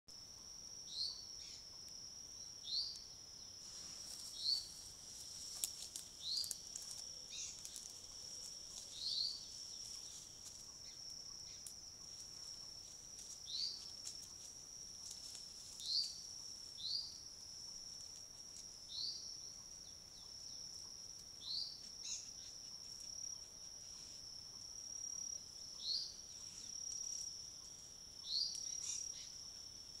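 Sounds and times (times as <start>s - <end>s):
bird chirping: 0.8s - 4.8s, 6.2s - 12.7s, 13.4s - 13.9s, 15.8s - 17.2s, 18.9s - 22.8s, 25.6s - 29.6s.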